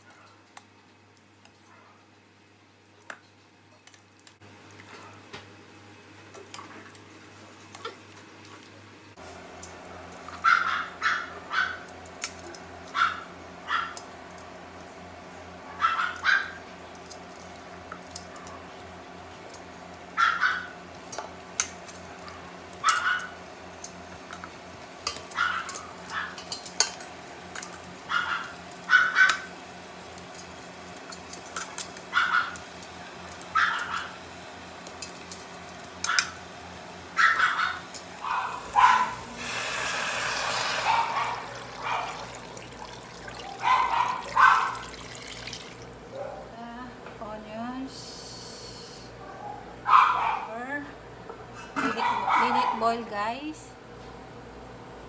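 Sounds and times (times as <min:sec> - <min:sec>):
dog barking: 0:10.4 - 0:11.9, 0:12.9 - 0:14.0, 0:15.7 - 0:16.6, 0:20.2 - 0:20.8, 0:22.2 - 0:23.4, 0:25.3 - 0:26.4, 0:28.1 - 0:29.5, 0:32.1 - 0:32.6, 0:33.5 - 0:34.2, 0:37.2 - 0:39.3, 0:40.8 - 0:42.3, 0:43.4 - 0:44.9, 0:46.1 - 0:46.5, 0:49.2 - 0:50.6, 0:51.9 - 0:52.9
metal tongs clinking on pot: 0:25.0 - 0:27.8
steady low hum: 0:40.8 - 0:52.4.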